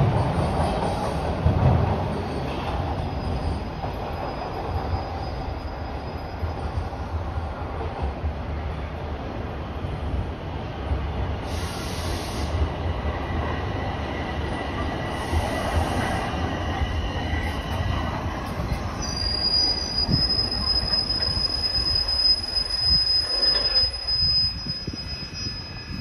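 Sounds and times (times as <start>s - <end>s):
subway train rumbling: 0.0s - 26.0s
high wheel squeal: 2.1s - 7.1s, 13.8s - 26.0s.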